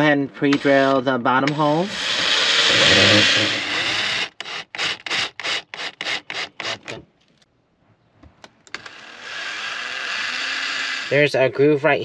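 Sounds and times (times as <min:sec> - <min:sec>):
cordless drill rasping bursts: 0:01.6 - 0:07.0, 0:08.8 - 0:11.2.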